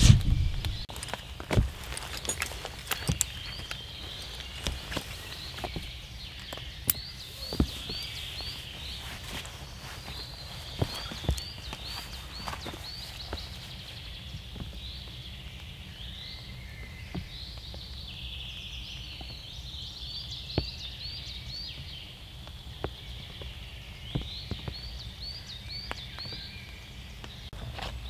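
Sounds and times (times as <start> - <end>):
steady low rumble: 0.0 - 1.0
songbird chirping: 0.0 - 28.0.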